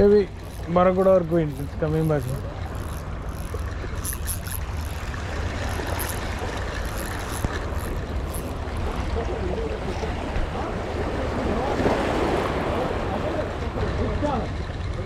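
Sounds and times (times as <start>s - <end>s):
fishing reel ticking: 0.0s - 9.3s.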